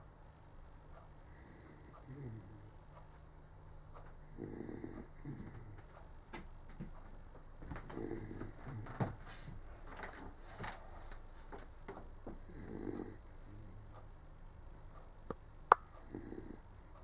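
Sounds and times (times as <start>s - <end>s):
dog snoring: 1.2s - 2.8s, 4.2s - 5.9s, 7.8s - 9.2s, 12.3s - 14.0s, 16.0s - 16.7s
soft breathing: 7.7s - 11.3s.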